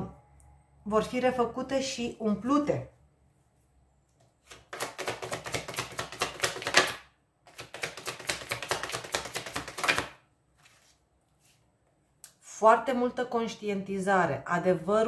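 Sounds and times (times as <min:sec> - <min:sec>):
cards being shuffled: 0:04.4 - 0:11.6.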